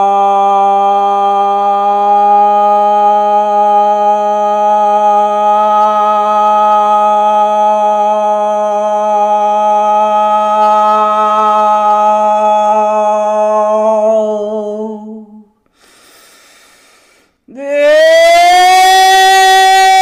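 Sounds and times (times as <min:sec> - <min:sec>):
woman singing long held note: 0:01.5 - 0:15.4.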